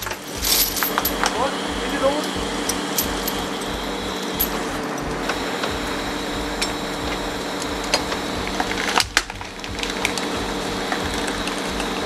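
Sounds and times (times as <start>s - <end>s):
metallic clicks and clanks: 0.0s - 1.4s
crane engine running: 0.0s - 12.0s.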